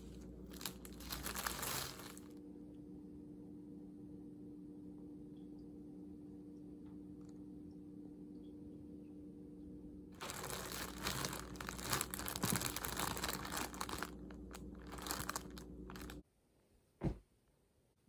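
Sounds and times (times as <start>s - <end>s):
crinkling crackling noise: 0.0s - 2.4s, 10.2s - 16.2s
steady low hum: 0.0s - 16.2s.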